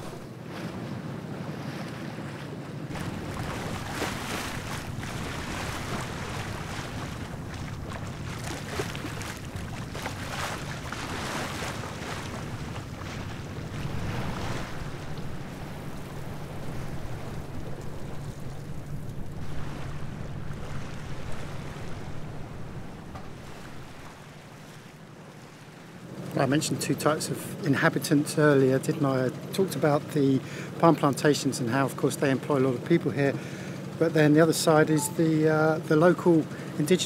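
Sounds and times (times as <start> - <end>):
water rushing past hull: 0.0 - 37.0
wind buffeting microphone: 2.8 - 24.4
low steady rumble: 2.9 - 29.3.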